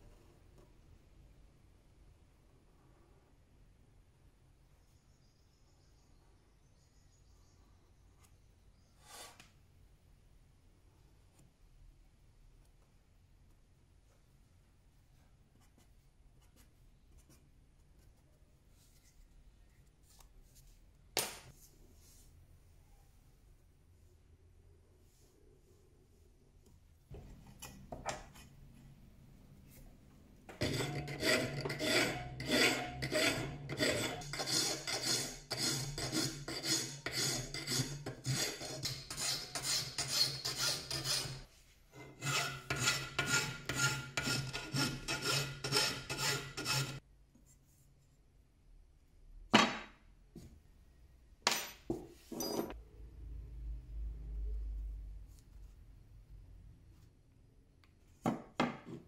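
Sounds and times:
file scraping on steel: 0:30.5 - 0:47.0.

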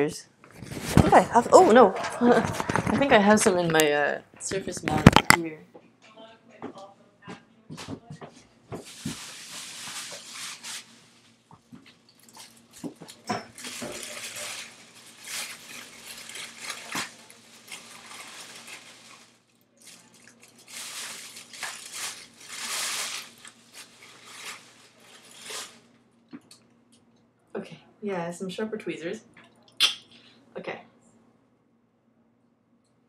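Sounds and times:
faint hum: 0:00.0 - 0:33.0
rustling: 0:08.8 - 0:11.3, 0:13.5 - 0:25.8.

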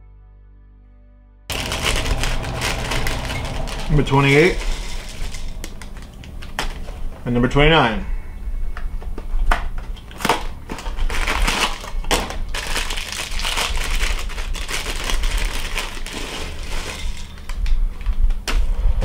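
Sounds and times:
dry cereal pouring into a bowl: 0:01.5 - 0:06.1, 0:12.6 - 0:17.4
plastic bag crinkling and ripping: 0:01.5 - 0:07.0, 0:10.0 - 0:17.8.

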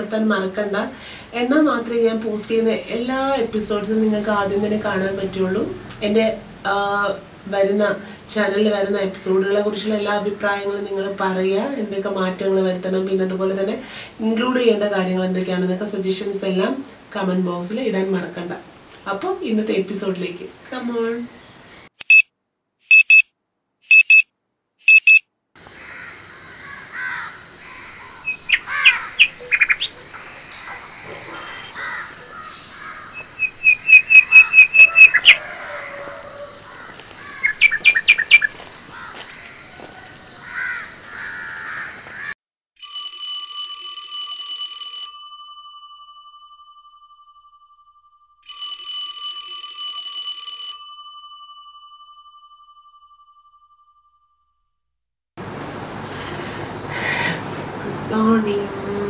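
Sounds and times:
short electronic beeps: 0:22.0 - 0:22.3, 0:22.9 - 0:23.3, 0:23.9 - 0:25.2
electronic alarm tone: 0:24.9 - 0:25.2, 0:33.1 - 0:36.6
birds chirping: 0:24.9 - 0:42.3.

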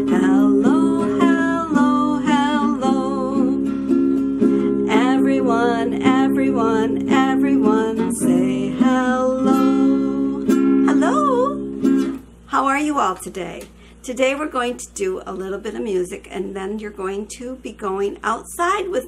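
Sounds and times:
woman singing: 0:00.0 - 0:04.0, 0:04.8 - 0:11.7
guitar strumming chords: 0:00.0 - 0:12.4.

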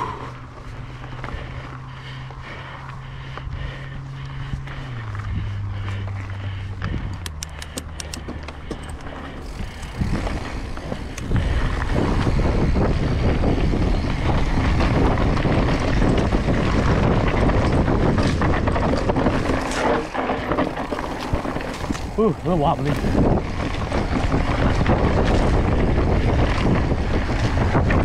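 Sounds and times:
bike rattling: 0:00.0 - 0:28.0
bike tyres on dirt: 0:00.0 - 0:28.0
wind on microphone: 0:09.4 - 0:28.0.

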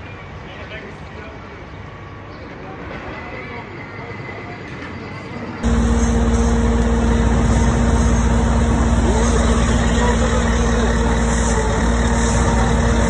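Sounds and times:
heavy diesel engine rumbling: 0:05.6 - 0:13.0.

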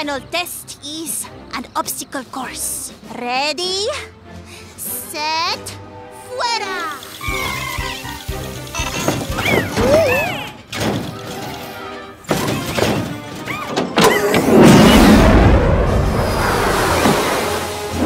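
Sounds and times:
cartoon background music: 0:00.0 - 0:18.0
sliding squeaks and whoops: 0:07.0 - 0:14.5
loud crash: 0:14.3 - 0:18.0.

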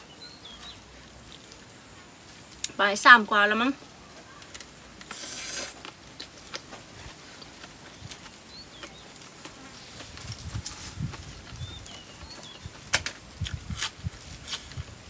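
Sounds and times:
clicks and crunches of eating: 0:04.2 - 0:15.0.

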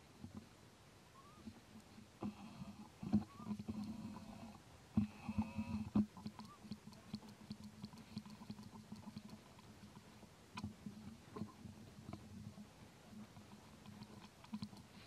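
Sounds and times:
thin squeak: 0:03.0 - 0:03.8.

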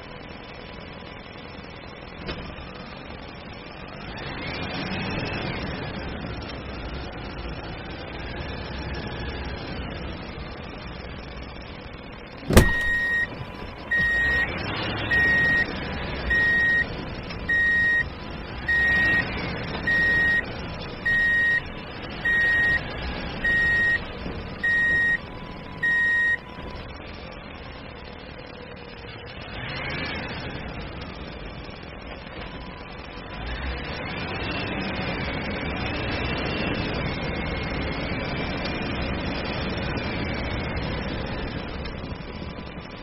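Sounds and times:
electronic beeper beeping: 0:12.6 - 0:13.3, 0:13.9 - 0:14.5, 0:15.1 - 0:15.7, 0:16.3 - 0:16.9, 0:17.5 - 0:18.0, 0:21.1 - 0:21.6.

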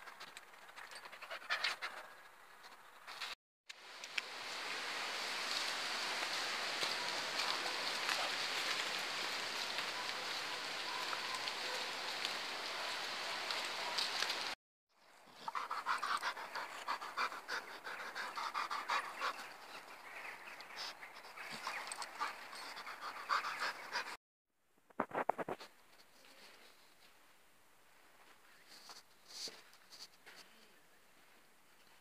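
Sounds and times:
steady rushing hiss: 0:03.8 - 0:10.8
dog panting rapidly: 0:15.4 - 0:19.7, 0:20.8 - 0:24.2.

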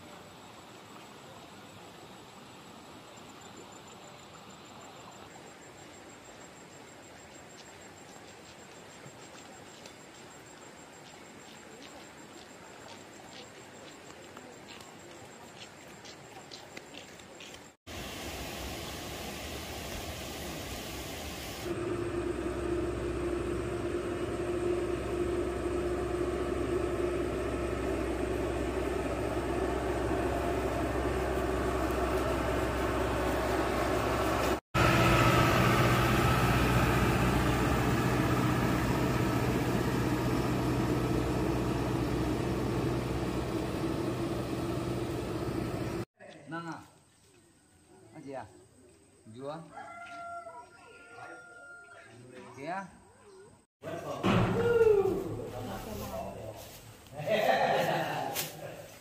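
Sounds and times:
engine humming: 0:17.9 - 0:46.1.

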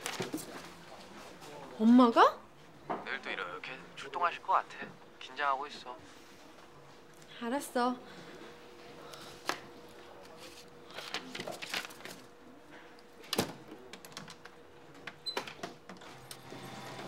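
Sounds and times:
faint steady hum: 0:00.0 - 0:15.2
paper rustling: 0:10.2 - 0:12.3.

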